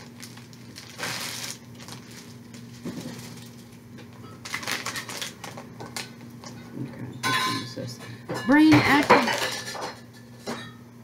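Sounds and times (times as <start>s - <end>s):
plastic wrapping crinkling: 0.0s - 6.1s
faint steady hum: 0.0s - 11.0s.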